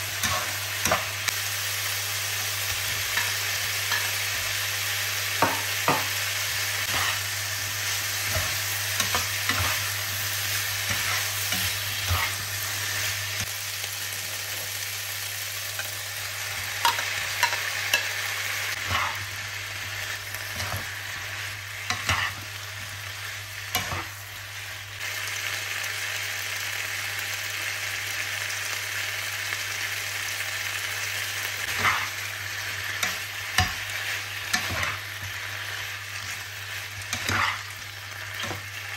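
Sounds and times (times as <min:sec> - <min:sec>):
food sizzling in a wok: 0:00.0 - 0:38.9
spatula scraping a pan: 0:06.8 - 0:07.3, 0:07.9 - 0:09.9, 0:10.6 - 0:13.1, 0:18.7 - 0:19.3, 0:21.8 - 0:22.4, 0:31.6 - 0:32.2, 0:37.1 - 0:38.7.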